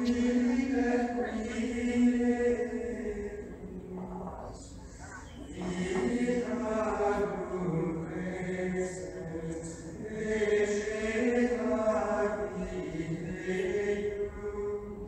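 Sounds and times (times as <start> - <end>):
choir singing long held notes: 0.0 - 4.2, 5.2 - 15.0.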